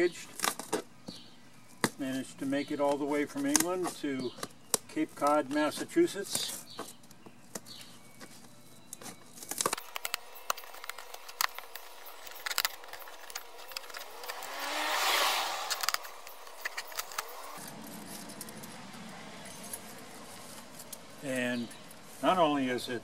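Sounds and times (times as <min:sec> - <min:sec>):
broad rushing sound: 0:14.0 - 0:17.7.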